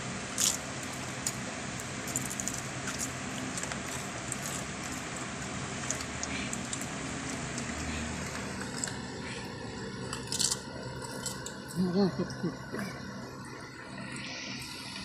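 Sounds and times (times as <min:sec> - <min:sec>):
steady low hum: 0:00.0 - 0:15.0
chips crunching: 0:00.3 - 0:09.1, 0:10.0 - 0:11.8.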